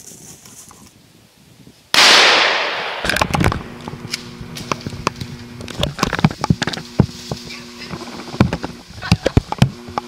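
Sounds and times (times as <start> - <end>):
gunshot: 1.9 - 3.4
clicks and crackles: 3.0 - 10.0.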